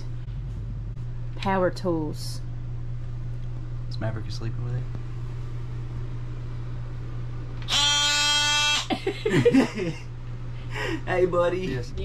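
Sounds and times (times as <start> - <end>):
steady low hum: 0.0 - 12.0
oscillating multi-tool buzzing: 7.6 - 9.1.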